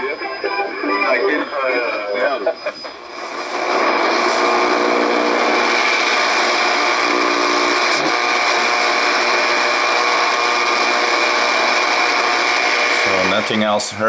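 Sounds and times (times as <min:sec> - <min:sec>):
faint radio whistles: 0:00.0 - 0:10.8
radio static hiss: 0:00.0 - 0:14.0.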